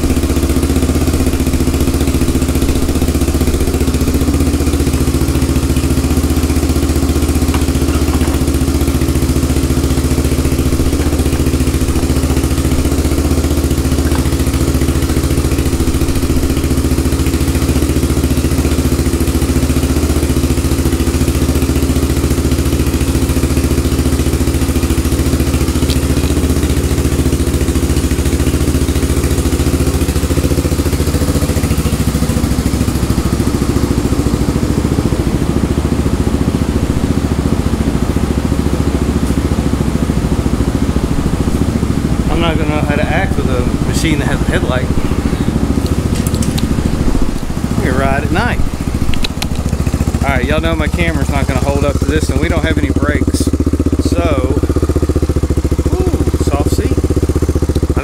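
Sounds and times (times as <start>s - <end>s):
engine idling: 0.0s - 58.0s.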